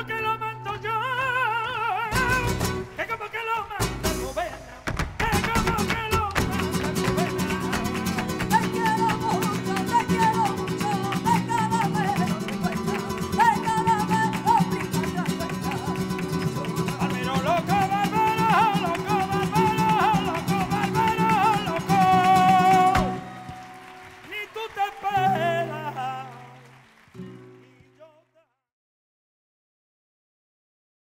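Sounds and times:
acoustic flamenco guitars: 0:00.0 - 0:28.2
rhythmic hand-clapping: 0:02.1 - 0:27.9.

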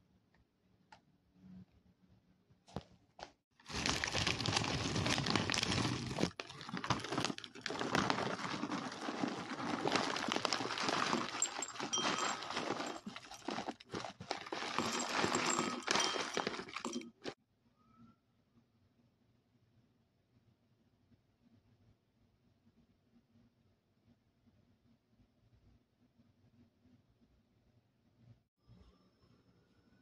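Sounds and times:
plastic bag crinkling: 0:03.6 - 0:17.4.

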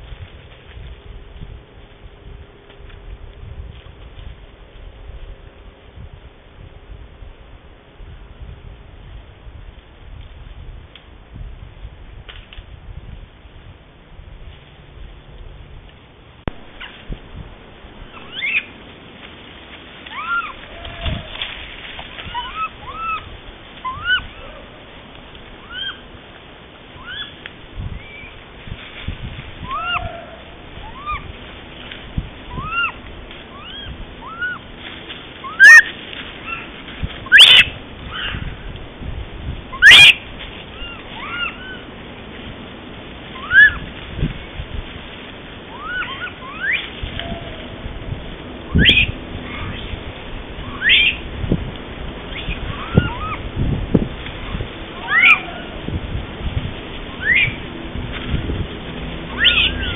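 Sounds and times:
monkeys giving coo calls: 0:18.2 - 0:18.8, 0:20.1 - 0:21.4, 0:22.2 - 0:25.0, 0:25.6 - 0:26.1, 0:27.0 - 0:27.4, 0:29.6 - 0:31.3, 0:32.5 - 0:34.7, 0:35.4 - 0:36.7, 0:37.3 - 0:38.5, 0:39.8 - 0:41.9, 0:43.4 - 0:43.8, 0:45.7 - 0:47.9, 0:48.7 - 0:50.0, 0:50.6 - 0:51.2, 0:52.3 - 0:53.5, 0:54.5 - 0:55.9, 0:57.2 - 0:57.6, 0:59.3 - 0:59.9.

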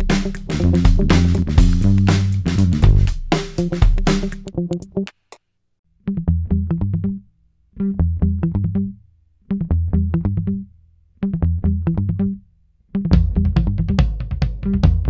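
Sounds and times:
plucked notes over bass line: 0:00.5 - 0:05.0, 0:07.8 - 0:09.0.

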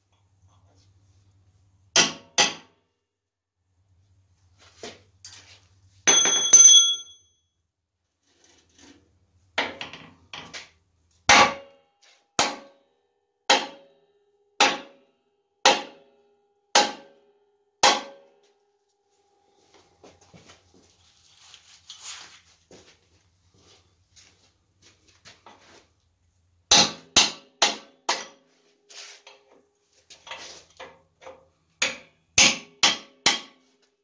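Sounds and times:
hammer striking metal with ring: 0:02.0 - 0:02.8, 0:06.1 - 0:07.3, 0:11.3 - 0:11.8, 0:12.4 - 0:12.8, 0:13.5 - 0:14.0, 0:14.6 - 0:15.0, 0:15.6 - 0:16.1, 0:16.7 - 0:18.4, 0:26.7 - 0:28.4, 0:31.8 - 0:33.6.

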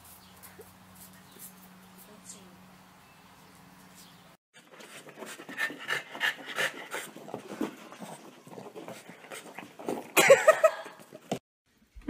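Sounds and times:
dog panting: 0:04.6 - 0:10.1.

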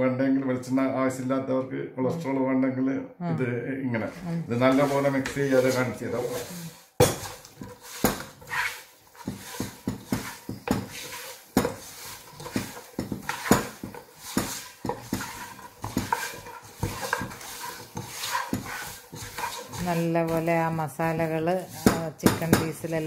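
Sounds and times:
chicken pieces knocking in pot: 0:09.2 - 0:23.0.

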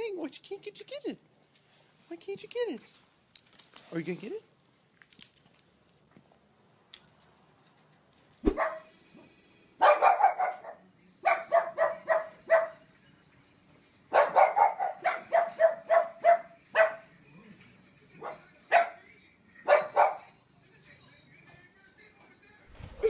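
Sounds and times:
dog barking sharply: 0:08.4 - 0:08.9, 0:09.8 - 0:12.8, 0:14.2 - 0:17.0.

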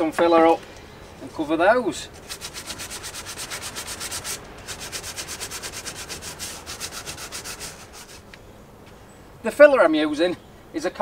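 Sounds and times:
sandpaper rubbing on wood: 0:02.1 - 0:08.3.

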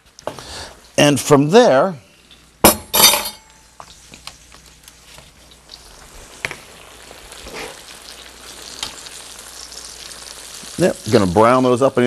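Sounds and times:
chicken sizzling in oil: 0:05.0 - 0:12.0.

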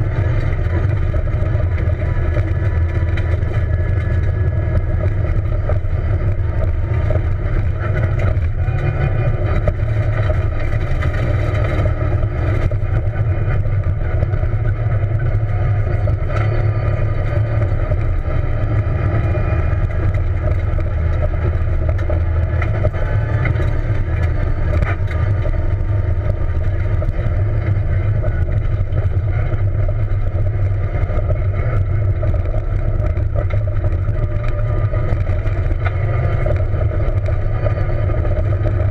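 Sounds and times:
car engine drone: 0:00.0 - 0:38.9
tyre and road noise: 0:00.0 - 0:38.9.

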